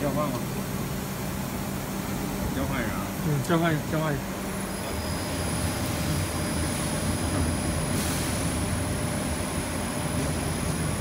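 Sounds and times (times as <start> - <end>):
laser cutting machine running: 0.0 - 11.0
faint high whine: 4.5 - 10.9.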